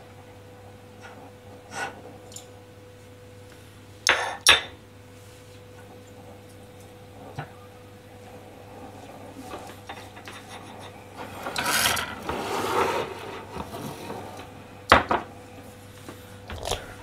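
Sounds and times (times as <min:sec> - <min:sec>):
bowl scraping across metal: 0:10.3 - 0:14.5.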